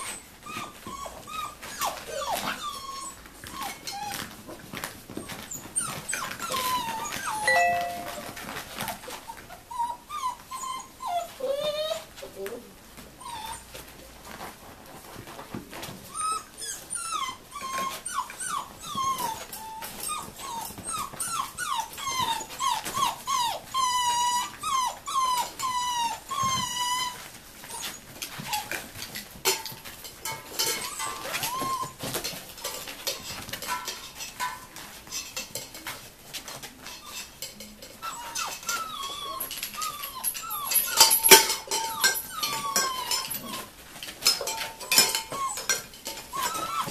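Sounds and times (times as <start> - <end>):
puppies whining and yelping: 0.0 - 12.3, 13.0 - 14.0, 15.8 - 29.2, 30.2 - 35.4, 36.8 - 46.9
tin cans clinking: 40.7 - 43.6.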